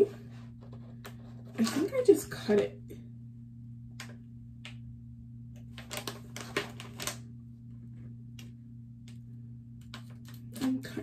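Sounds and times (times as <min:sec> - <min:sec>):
low steady hum: 0:00.0 - 0:11.0
paper rustling: 0:05.6 - 0:07.2.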